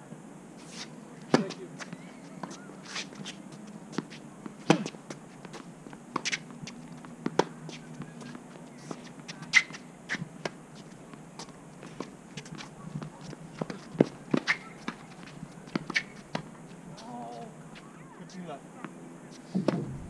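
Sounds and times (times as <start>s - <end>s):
racket hitting tennis ball: 1.3s - 6.5s, 11.4s - 16.6s.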